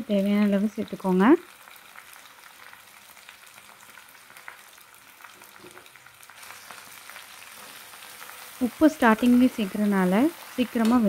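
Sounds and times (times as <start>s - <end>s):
potato slices sizzling in oil: 0.0s - 11.0s.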